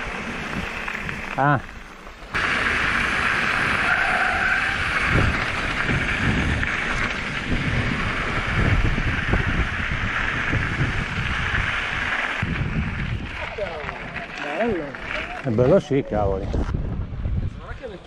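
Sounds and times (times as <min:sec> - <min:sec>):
bike tyre and wind noise: 0:00.0 - 0:18.0
bike thumping and rattling: 0:04.7 - 0:15.7.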